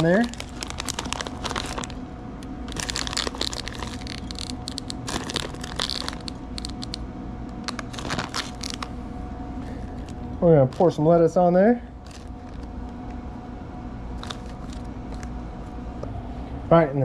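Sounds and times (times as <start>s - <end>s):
plastic bag crinkling and rustling: 0.0s - 2.0s, 2.7s - 7.0s, 7.6s - 8.9s, 9.9s - 11.0s, 12.0s - 12.7s, 14.2s - 15.3s
faint steady hum: 0.0s - 17.0s.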